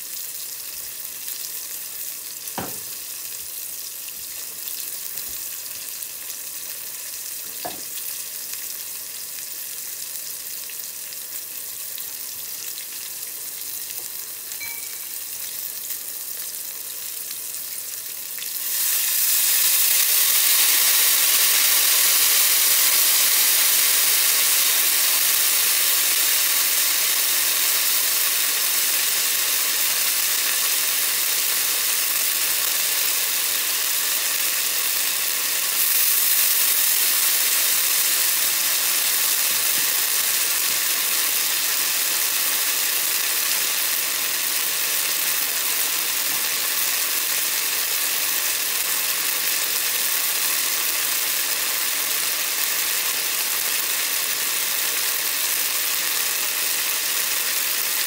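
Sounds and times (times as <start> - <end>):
eggplant sizzling in oil: 0.0 - 58.0
liquid poured into hot pan: 18.4 - 24.7, 35.3 - 45.0.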